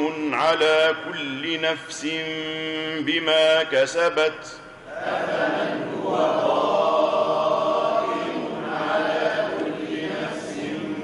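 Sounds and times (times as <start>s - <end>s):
group chanting in unison: 4.9s - 11.0s.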